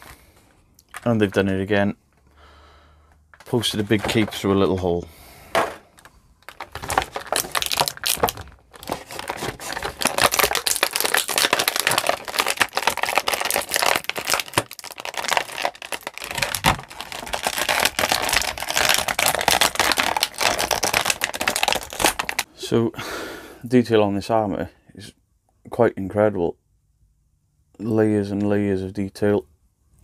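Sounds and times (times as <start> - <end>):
plastic packaging crinkling: 5.9 - 22.5.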